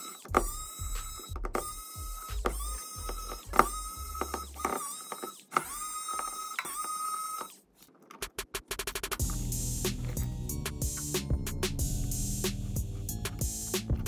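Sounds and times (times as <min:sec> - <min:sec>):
electric screwdriver whirring: 0:00.0 - 0:07.6.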